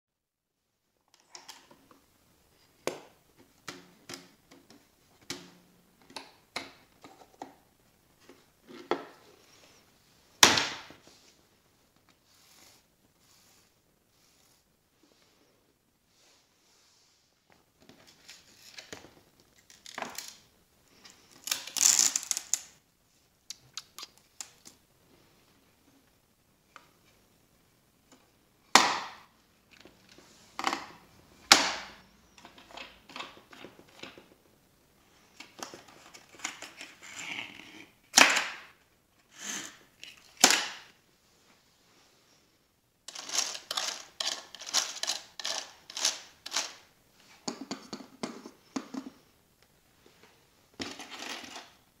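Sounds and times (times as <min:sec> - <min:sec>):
busy board pieces clicking: 0:21.4 - 0:22.8, 0:43.1 - 0:46.8.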